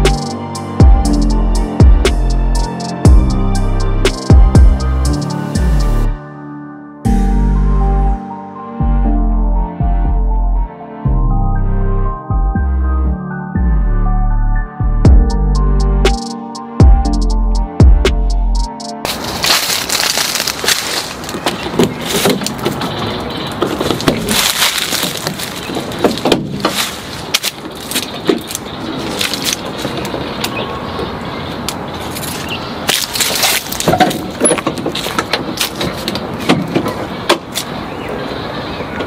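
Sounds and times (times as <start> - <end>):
music: 0.0 - 19.1
van doors knocking and rattling: 26.0 - 26.8.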